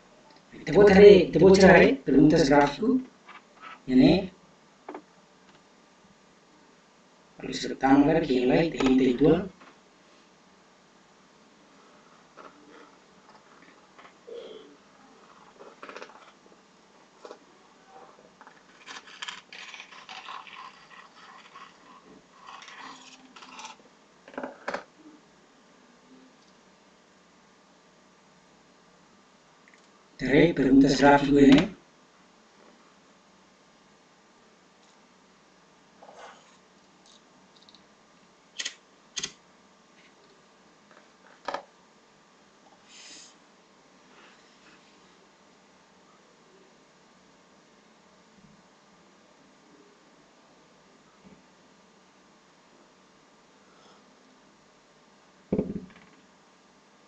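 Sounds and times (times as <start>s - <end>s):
sharp clicks: 38.6s - 39.4s
short soft hiss: 42.8s - 43.4s.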